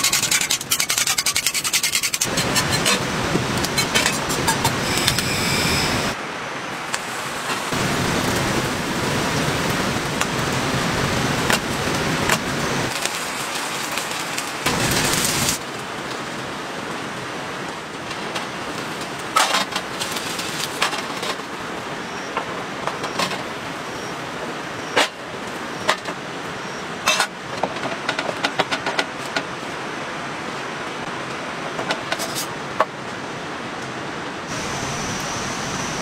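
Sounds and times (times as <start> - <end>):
vegetables sizzling in frying pan: 12.8 - 15.6.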